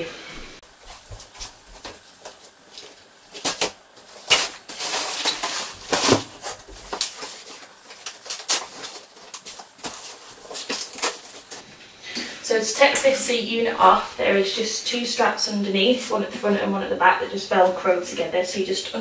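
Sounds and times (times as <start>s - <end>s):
fabric rustling and scraping: 0.7s - 11.7s.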